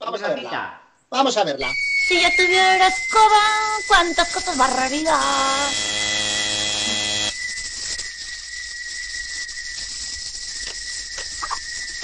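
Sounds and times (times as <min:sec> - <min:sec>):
high whistle-like tone: 0:01.6 - 0:12.0
faint hiss: 0:06.6 - 0:12.0.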